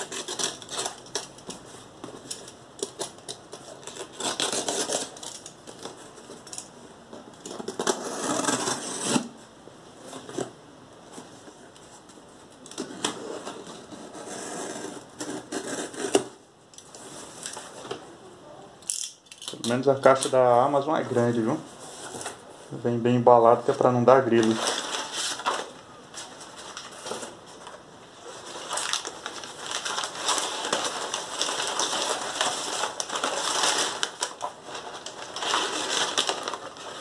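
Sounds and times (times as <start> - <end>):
box cutter slitting packing tape: 0.0 - 1.4, 2.3 - 5.6, 7.5 - 9.3, 14.2 - 16.4.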